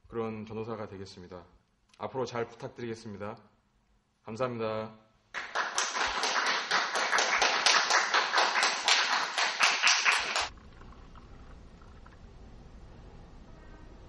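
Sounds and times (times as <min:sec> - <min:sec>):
faint room noise: 0:00.0 - 0:14.0
audience clapping: 0:05.4 - 0:10.5.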